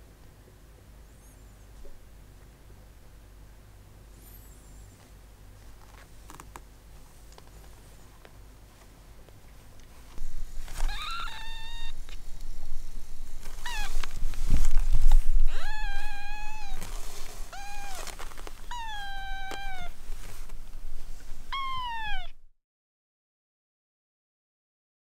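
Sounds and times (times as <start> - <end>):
kittens mewing: 10.7 - 12.1, 13.5 - 14.2, 15.4 - 20.0, 21.5 - 22.4.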